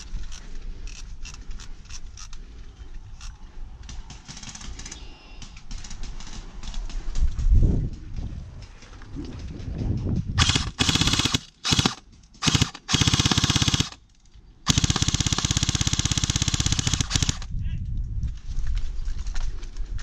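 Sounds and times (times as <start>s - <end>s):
airsoft gun firing bursts: 10.4s - 14.0s, 14.7s - 17.5s.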